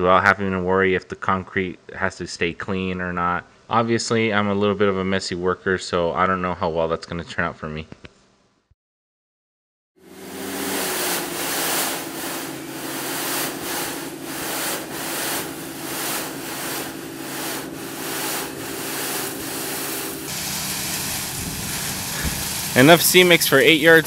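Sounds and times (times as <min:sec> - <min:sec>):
hydraulic pump motor humming: 0:10.0 - 0:23.3
gravel sliding off trailer bed: 0:10.4 - 0:24.0.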